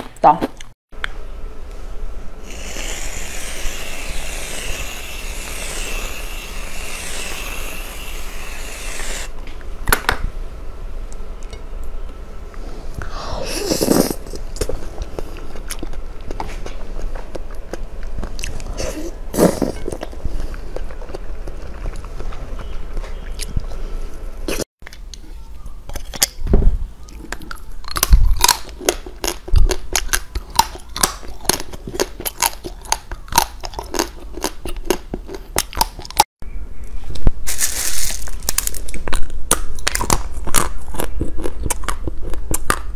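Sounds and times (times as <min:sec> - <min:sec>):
aerosol cream can hissing: 0:02.5 - 0:09.3
sticky clicking eating sounds: 0:27.1 - 0:36.2, 0:39.0 - 0:42.9.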